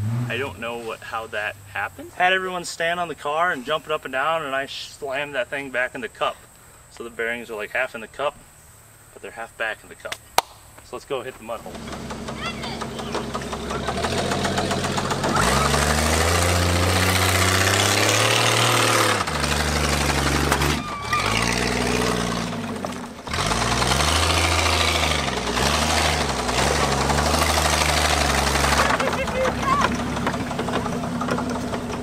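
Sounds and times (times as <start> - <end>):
car engine revving: 0.0 - 2.1, 11.5 - 32.0.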